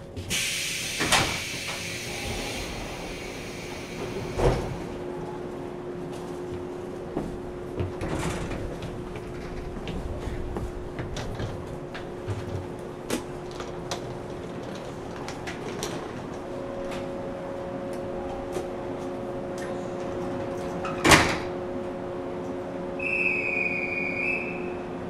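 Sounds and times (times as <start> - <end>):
sliding doors shutting thump: 3.9 - 4.9, 20.9 - 21.5.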